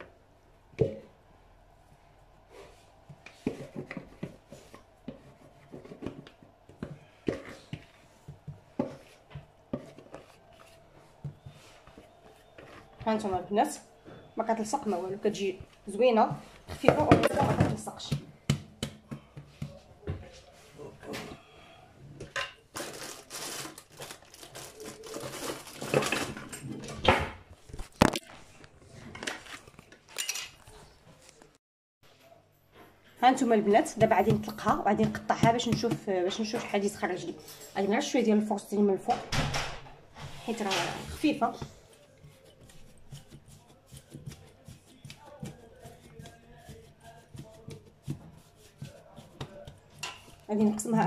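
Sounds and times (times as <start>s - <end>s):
rustling and handling noise: 1.8s - 18.4s, 22.2s - 38.2s, 40.0s - 51.0s
dough thumping on stone countertop: 16.7s - 19.8s, 33.8s - 36.9s
metal utensils clinking: 30.1s - 30.7s.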